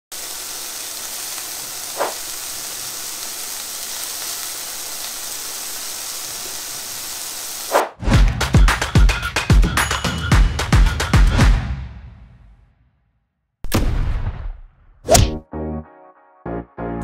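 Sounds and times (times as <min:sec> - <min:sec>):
chicken sizzling in a frying pan: 0:00.1 - 0:07.8
music with a beat: 0:08.1 - 0:11.8.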